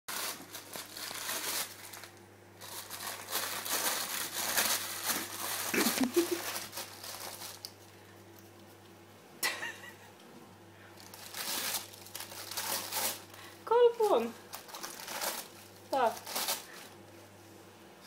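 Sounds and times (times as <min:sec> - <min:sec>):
baking paper crinkling: 0:00.1 - 0:08.0, 0:11.0 - 0:17.1.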